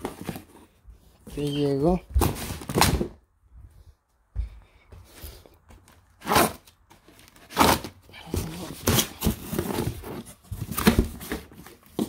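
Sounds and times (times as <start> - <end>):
packaging rustling and crinkling: 6.4 - 12.0.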